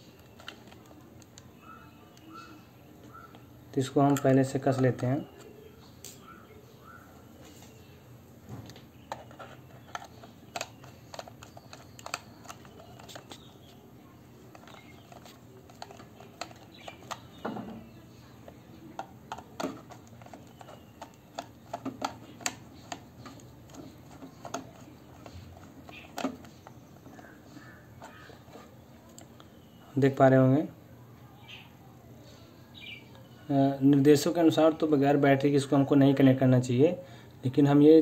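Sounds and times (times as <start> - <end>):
plastic casing knocking: 14.5 - 18.0, 19.0 - 28.3.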